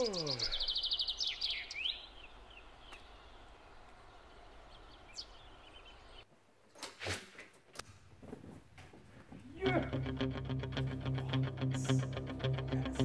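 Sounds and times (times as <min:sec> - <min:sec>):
small birds chirping: 0:00.0 - 0:06.3.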